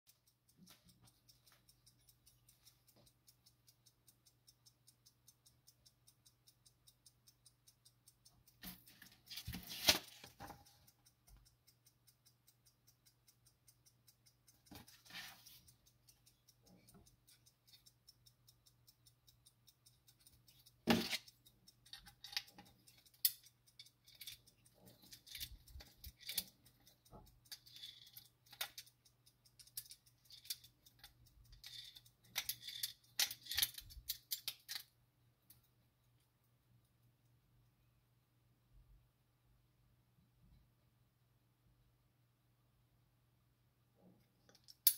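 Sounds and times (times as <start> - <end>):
clock ticking steadily: 0.0 - 44.9
metal clock movement rattling: 0.1 - 35.8.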